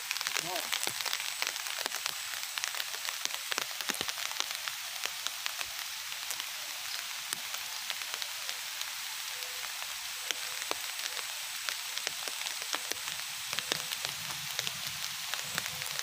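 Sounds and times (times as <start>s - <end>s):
sharp raindrop ticks: 0.0s - 16.0s
steady rain: 0.0s - 16.0s.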